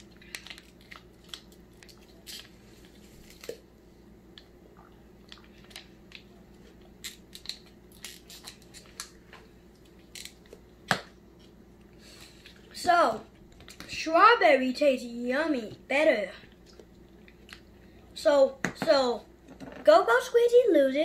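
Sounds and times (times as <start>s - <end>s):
plastic pouch crinkling: 0.0s - 3.6s.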